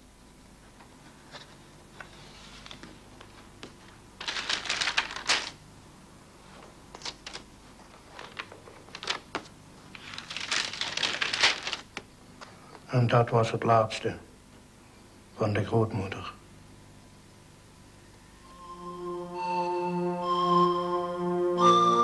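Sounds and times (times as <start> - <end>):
album pages rustling: 0.7 - 5.6, 6.4 - 12.6.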